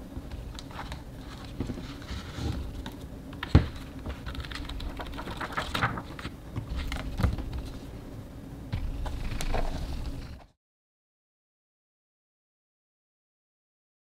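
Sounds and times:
book pages flipping: 0.3s - 7.9s, 8.8s - 10.6s.

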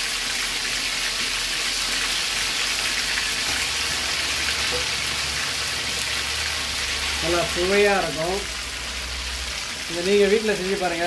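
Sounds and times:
chicken deep-frying in oil: 0.0s - 11.0s.

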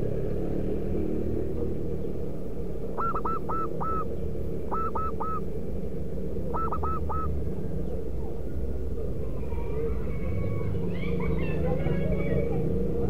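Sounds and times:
dove cooing: 2.8s - 5.6s, 6.2s - 13.0s.

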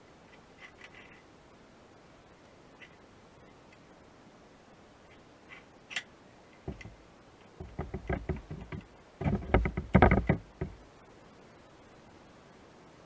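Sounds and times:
dull knocks: 6.7s - 7.0s, 7.6s - 10.8s.

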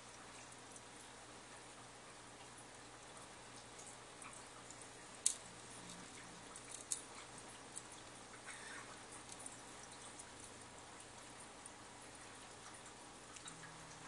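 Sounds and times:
aquarium equipment hum: 0.0s - 14.0s
light ticking: 0.0s - 14.0s.

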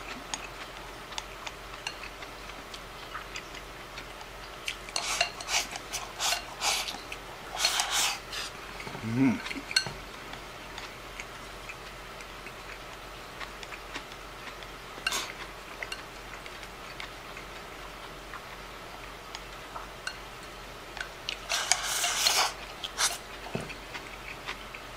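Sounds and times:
chopsticks scraping ceramic bowl: 4.9s - 8.6s, 21.5s - 23.2s
short voiced hum: 8.9s - 9.7s.

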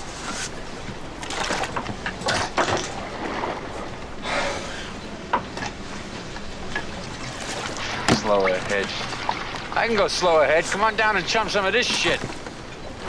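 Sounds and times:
hiss of sea and wind: 0.0s - 1.2s, 2.9s - 11.9s
rush of water: 0.0s - 13.0s
knocks and clatters: 0.8s - 4.1s.

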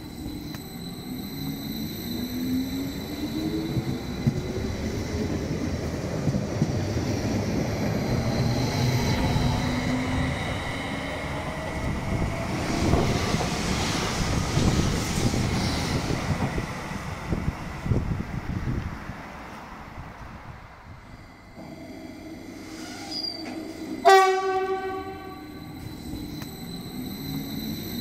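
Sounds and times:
wheel squeal: 0.0s - 5.5s, 22.5s - 24.1s, 25.2s - 28.0s
electric train rumble and whine: 0.0s - 28.0s
train passing with loud hiss: 0.0s - 28.0s.

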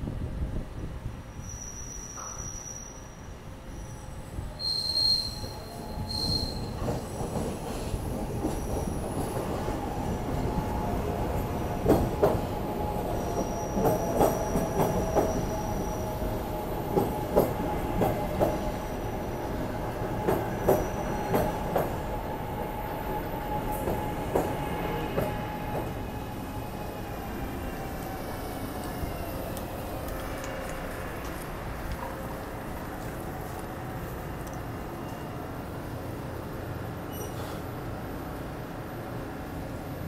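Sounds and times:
high wheel squeals: 1.3s - 7.2s, 37.1s - 37.6s
train whine: 3.2s - 40.0s.

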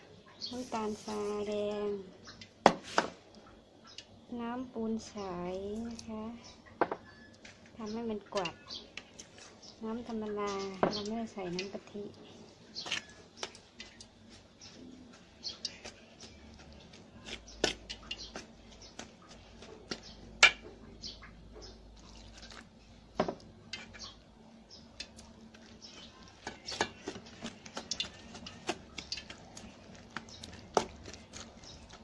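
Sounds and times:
spatula scraping metal bowl: 23.7s - 24.1s, 25.6s - 32.0s.

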